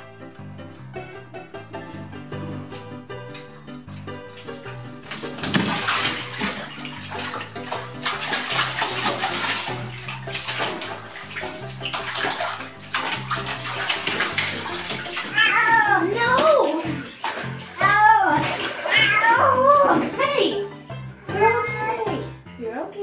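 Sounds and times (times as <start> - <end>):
bathtub water splashing: 0.0 - 22.5.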